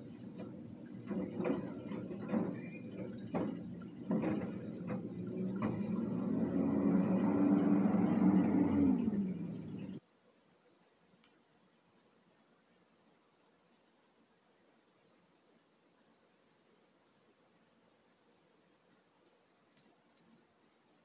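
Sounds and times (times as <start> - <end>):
metal clanks of garbage cart: 0.0 - 10.0
truck engine revving: 0.1 - 10.0.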